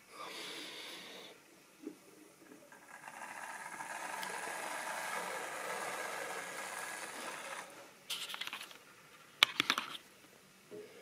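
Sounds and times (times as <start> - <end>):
model train motor whirring: 2.7 - 7.9.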